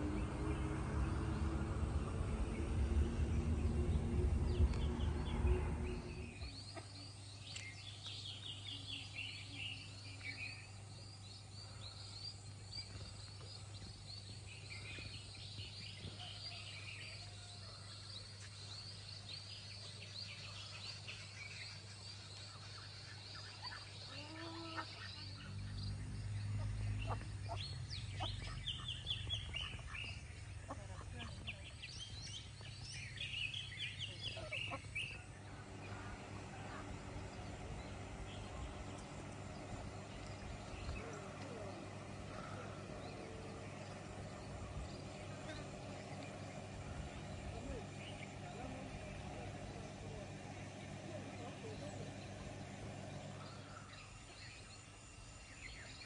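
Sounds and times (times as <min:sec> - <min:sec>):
loud low rumble: 0:00.0 - 0:06.8, 0:35.1 - 0:54.0
small birds chirping: 0:00.0 - 0:56.0
ducks calling: 0:26.6 - 0:31.7, 0:34.1 - 0:53.9.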